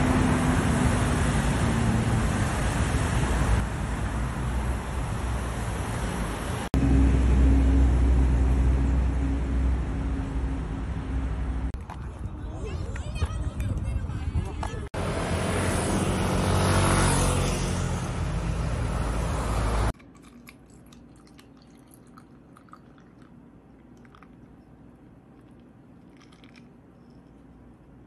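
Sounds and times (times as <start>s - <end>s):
vehicle passing: 0.0s - 11.8s, 15.0s - 19.9s
coffee poured into a glass: 20.0s - 24.6s, 25.4s - 27.3s.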